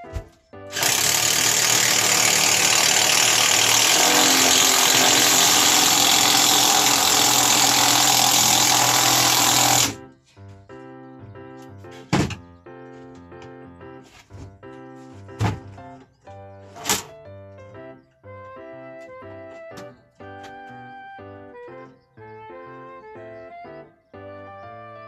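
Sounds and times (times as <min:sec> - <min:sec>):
cordless drill driving screw: 0:00.7 - 0:10.0.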